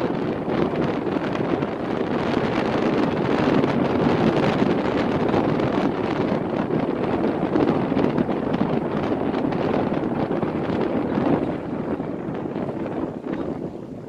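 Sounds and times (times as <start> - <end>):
wind noise on microphone: 0.0 - 14.0.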